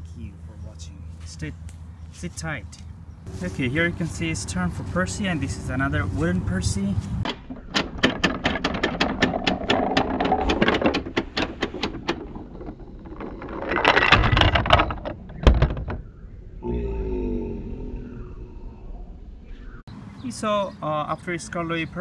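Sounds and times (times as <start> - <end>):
toy landing on plastic knock: 7.3 - 16.0
toy train rattling: 7.7 - 15.2.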